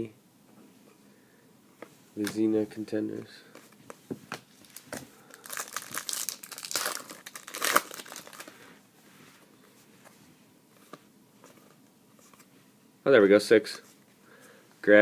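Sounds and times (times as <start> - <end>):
cards rustling: 3.4 - 8.6
wrapper tearing and crinkling: 4.6 - 8.5.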